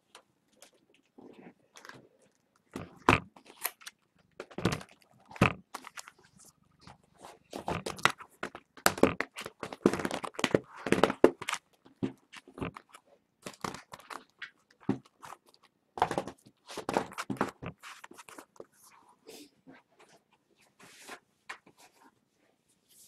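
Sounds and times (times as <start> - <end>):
card packs crinkling and tearing: 7.5 - 18.6.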